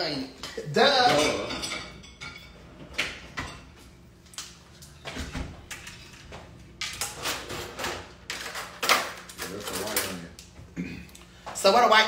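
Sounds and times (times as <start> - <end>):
kitchen knocks and clunks: 0.4 - 3.9, 5.0 - 9.2.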